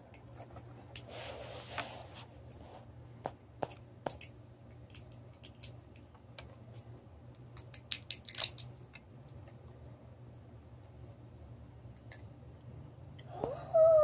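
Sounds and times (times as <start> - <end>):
toy egg shell cracking: 4.9 - 6.1, 7.3 - 9.0.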